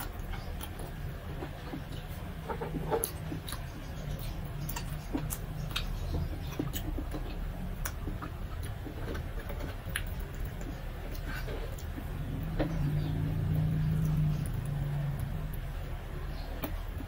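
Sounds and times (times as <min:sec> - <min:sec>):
low steady hum: 0:00.0 - 0:17.0
wet mouth clicks and smacks chewing: 0:02.9 - 0:09.2.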